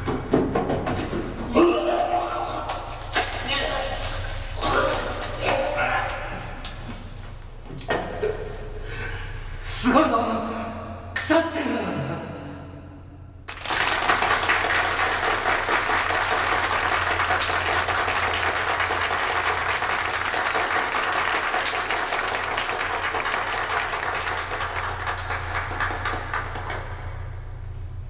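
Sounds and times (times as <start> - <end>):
audience applauding: 13.5 - 27.6.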